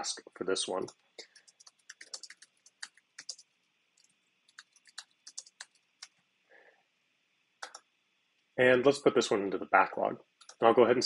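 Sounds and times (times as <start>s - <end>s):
typing on computer keyboard: 0.8s - 6.2s, 7.6s - 7.8s, 10.4s - 10.6s.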